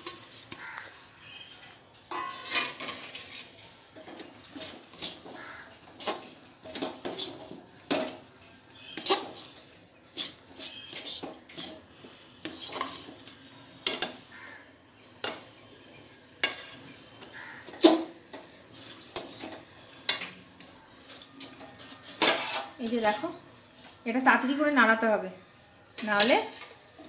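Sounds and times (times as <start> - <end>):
metal spatula scraping metal pan: 0.0 - 8.2, 8.8 - 14.4, 16.3 - 18.1, 18.7 - 20.7, 21.7 - 23.4.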